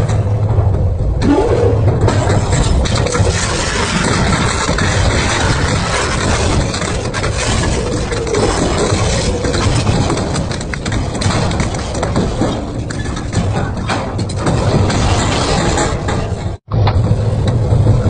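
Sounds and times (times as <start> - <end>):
low rumble: 0.0 - 18.0
shredder crunching and grinding: 2.0 - 13.0.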